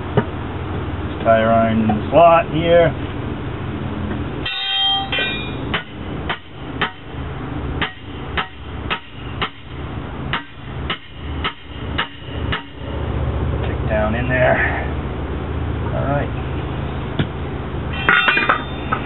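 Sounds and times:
hammer striking steel: 4.4 - 7.1, 7.8 - 9.6, 10.3 - 12.9, 17.9 - 19.0.

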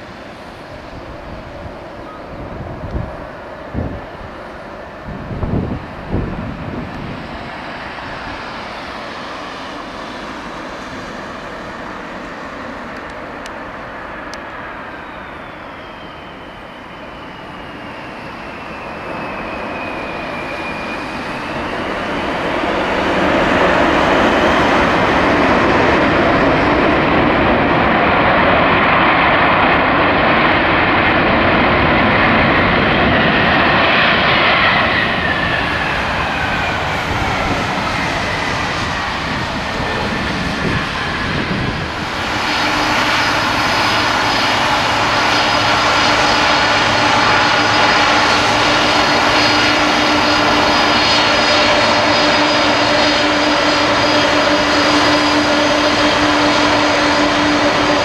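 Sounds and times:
jet engines whining: 0.0 - 58.0
reverse thrust roar: 19.0 - 58.0.

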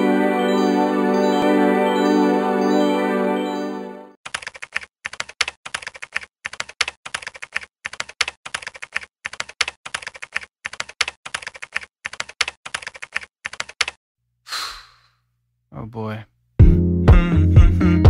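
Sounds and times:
keyboard typing: 4.3 - 14.0.

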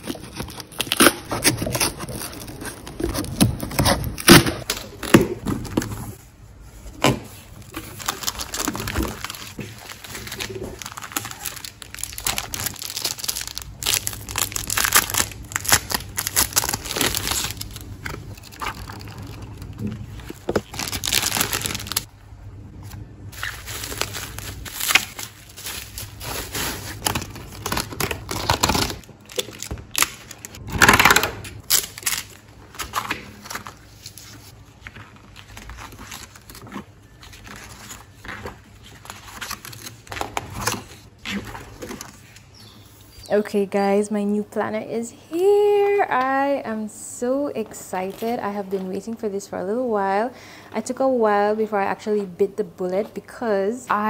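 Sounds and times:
bubble wrap and plastic crinkling: 0.0 - 22.1, 22.8 - 43.2.

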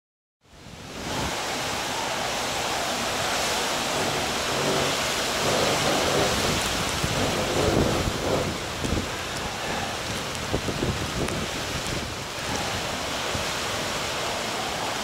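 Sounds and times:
driving rain: 0.4 - 15.0
wind whipping through palm trees: 0.4 - 15.0.

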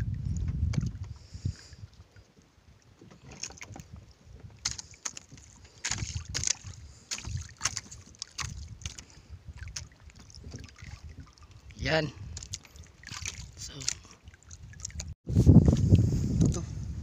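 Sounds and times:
knocks and thumps on a boat: 0.0 - 1.2, 2.9 - 11.5, 12.2 - 15.8
splashy rustles: 3.1 - 15.8.

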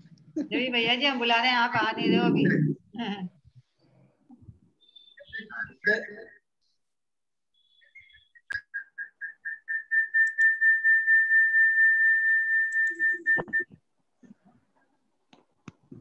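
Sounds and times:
high whistling tone: 7.6 - 13.8.

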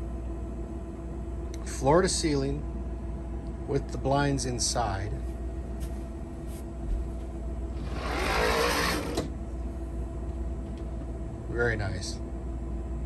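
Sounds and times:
steady low hum: 0.0 - 13.0
blind slats rattling: 7.8 - 9.3.

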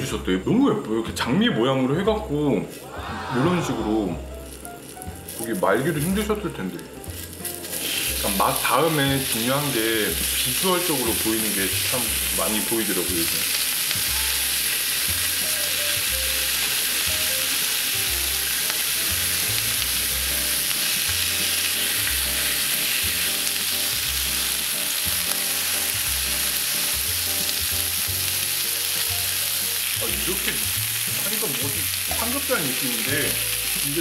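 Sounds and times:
beef sizzling on a griddle: 2.4 - 34.0.

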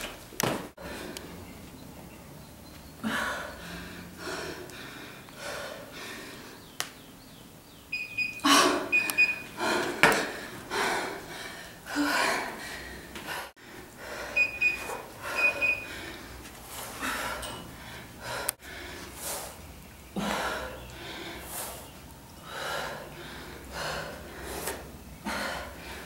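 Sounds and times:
woman breathing hard: 3.0 - 6.7, 8.4 - 21.8, 22.4 - 26.0
short high electronic beeps: 7.9 - 9.5, 14.4 - 15.9.

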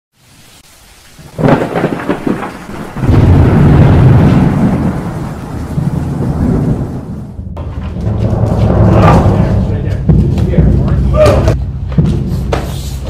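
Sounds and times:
faint rain hiss: 0.2 - 7.2
thunder clap and rumble: 1.2 - 12.3.

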